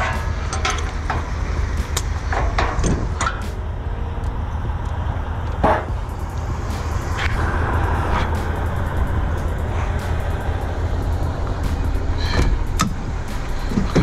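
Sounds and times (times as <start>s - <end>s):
sharp clicks and knocks: 0.0s - 3.6s, 9.4s - 14.0s
vehicle engine idling: 0.0s - 14.0s.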